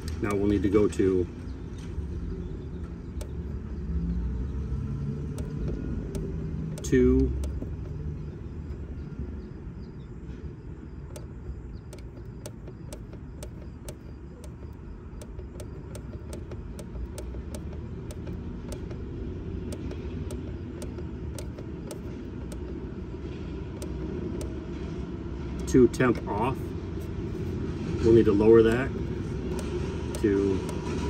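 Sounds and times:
push button clicking: 3.0s - 3.8s, 5.0s - 8.9s, 11.1s - 22.8s, 23.7s - 24.6s, 25.6s - 26.6s, 28.3s - 31.0s.

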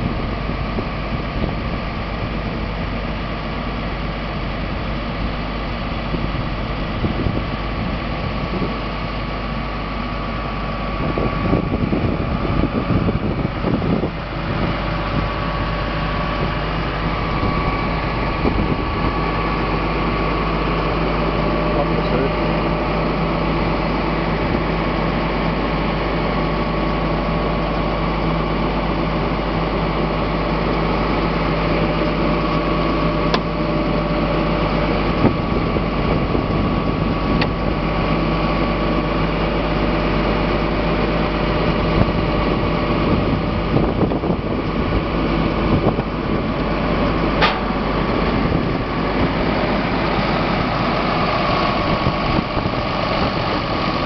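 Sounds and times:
diesel engine idling: 0.0s - 54.0s.

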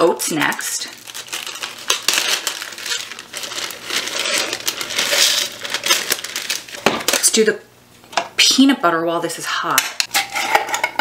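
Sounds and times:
plastic bag crinkling: 0.3s - 7.4s.

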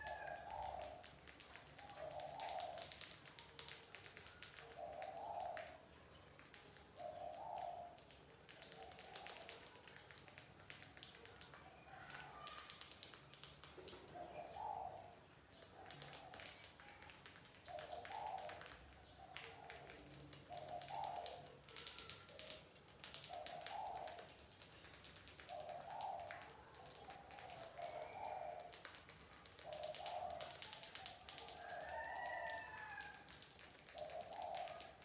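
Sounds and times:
dove cooing: 0.0s - 1.1s, 1.8s - 3.1s, 4.6s - 5.8s, 7.0s - 8.0s, 14.0s - 15.2s, 17.6s - 22.6s, 25.3s - 35.0s.

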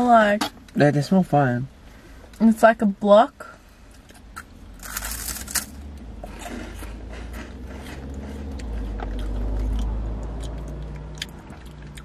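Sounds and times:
chewing crackles: 4.0s - 12.0s
crunching snack: 4.1s - 12.0s.

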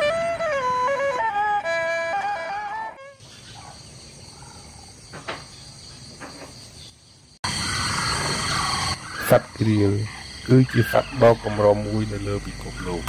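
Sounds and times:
wind instrument music: 0.0s - 3.2s
insect buzz: 0.0s - 13.0s
bird calls: 3.2s - 13.0s.

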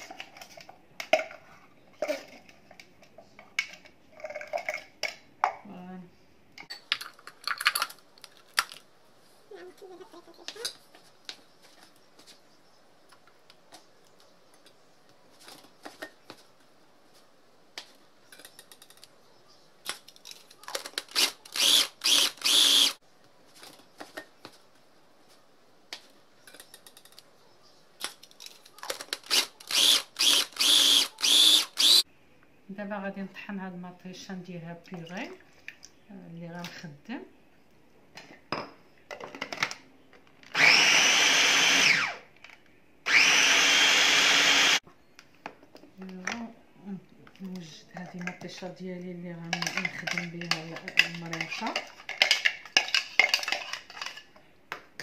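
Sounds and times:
electric food chopper pulsing: 29.8s - 32.0s, 40.6s - 42.2s, 43.1s - 44.8s.

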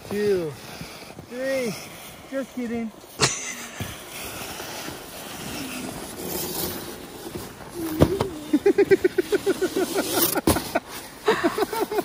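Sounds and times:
sled scraping over snow: 0.0s - 12.0s
burst of laughter: 3.2s - 3.9s
thump: 7.9s - 8.3s.

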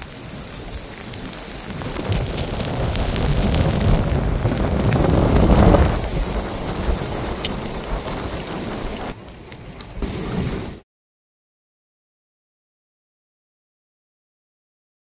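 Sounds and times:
heavy rain on pavement: 0.0s - 10.8s
thunder rumble: 0.2s - 9.2s, 9.9s - 10.8s.

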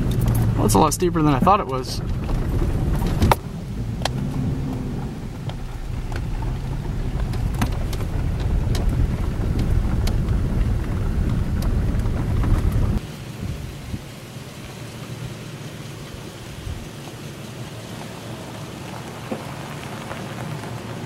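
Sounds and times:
knocks and rattles over bumps: 0.0s - 13.0s
engine and tyre rumble: 0.0s - 21.0s.

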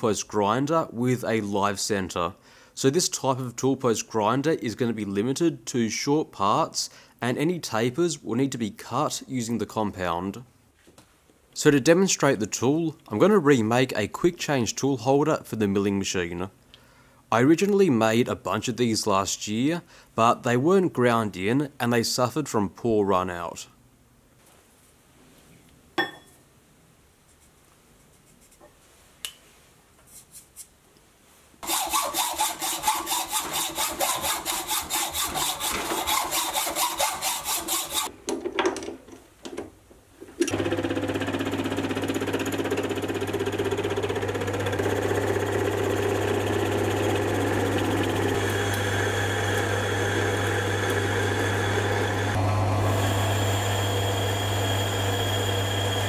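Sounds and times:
hand tool rasping metal: 31.6s - 38.1s
metal lathe motor hum: 40.5s - 56.0s.

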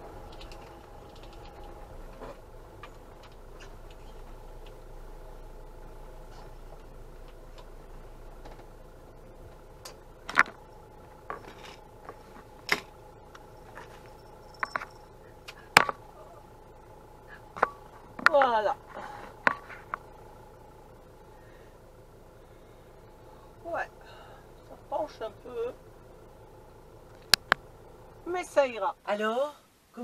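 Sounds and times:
van engine running: 0.0s - 29.3s
sharp clicks in cab: 0.2s - 4.9s, 9.8s - 10.6s, 11.3s - 16.0s, 27.1s - 27.7s.

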